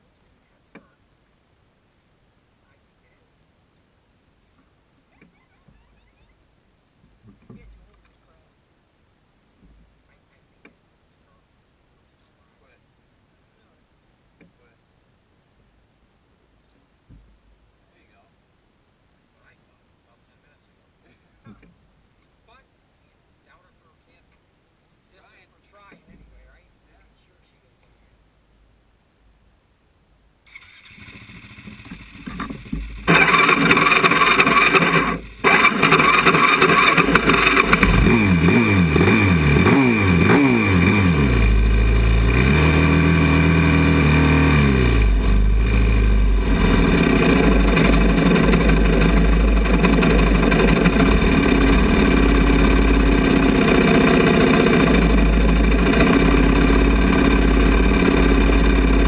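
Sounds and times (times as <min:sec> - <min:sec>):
quad bike engine revving: 0:30.5 - 0:59.0.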